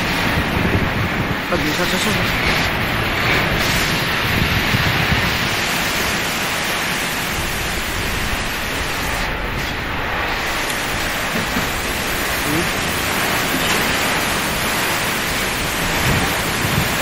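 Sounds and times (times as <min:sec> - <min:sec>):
wind on microphone: 0:00.0 - 0:17.0.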